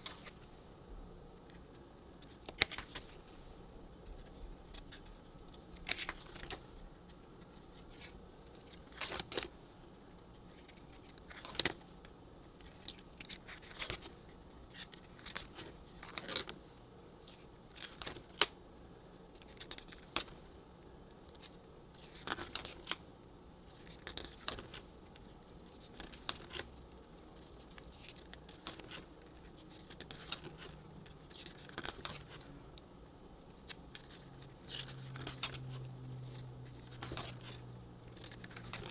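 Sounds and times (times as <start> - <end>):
paper pages turning: 0.0 - 0.5, 1.5 - 3.4, 4.1 - 6.8, 7.4 - 9.5, 10.4 - 11.8, 12.6 - 16.6, 17.2 - 18.5, 19.3 - 20.4, 21.3 - 23.0, 23.6 - 32.5, 33.6 - 38.9.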